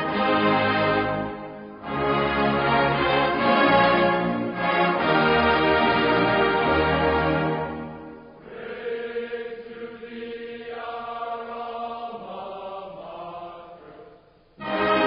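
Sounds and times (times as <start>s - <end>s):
music: 0.0s - 15.0s
many voices chanting: 8.4s - 14.2s.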